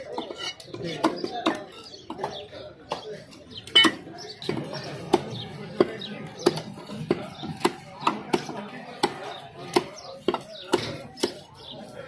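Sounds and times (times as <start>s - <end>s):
knife chopping on wooden block: 3.7s - 11.5s.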